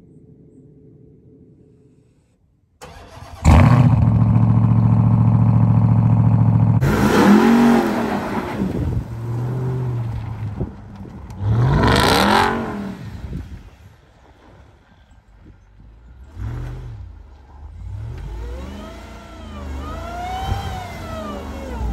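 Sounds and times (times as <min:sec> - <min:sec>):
car engine revving: 0:02.8 - 0:13.6, 0:16.2 - 0:21.9
car engine starting and idling: 0:02.8 - 0:14.9, 0:15.8 - 0:21.9.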